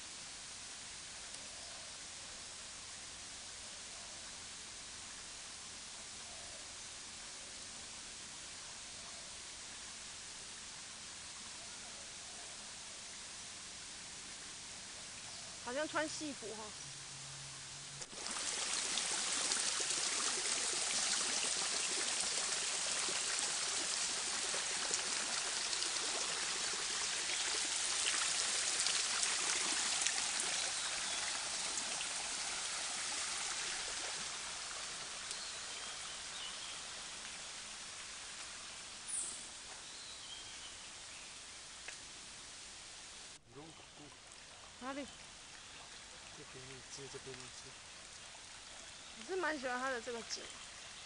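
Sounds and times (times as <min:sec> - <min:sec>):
stream running over pebbles: 0:12.9 - 0:16.8, 0:17.9 - 0:51.0.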